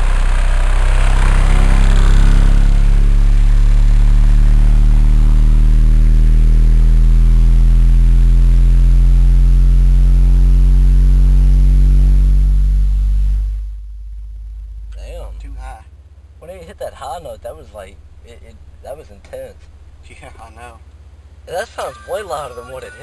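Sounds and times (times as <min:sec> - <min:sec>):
loud distorted subwoofer bass note: 0:00.0 - 0:16.1.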